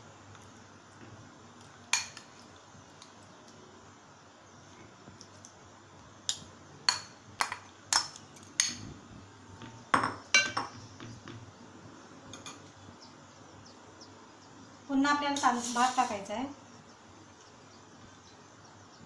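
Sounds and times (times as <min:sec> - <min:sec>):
spoon clinking against metal cookware: 0:10.0 - 0:10.7.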